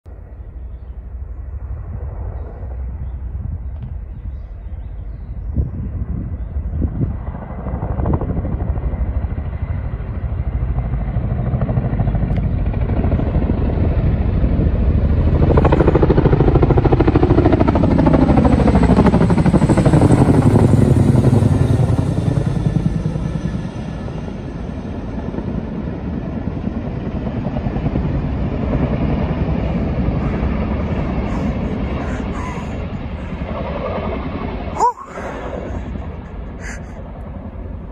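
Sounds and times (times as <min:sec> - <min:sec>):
helicopter rotors beating: 0:00.1 - 0:37.9.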